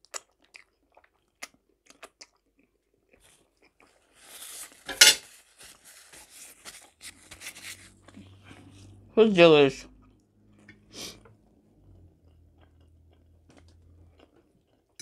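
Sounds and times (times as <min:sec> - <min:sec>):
chewing and finger-licking: 0:00.0 - 0:04.1, 0:09.9 - 0:15.0
paper napkin rustling: 0:04.2 - 0:08.1.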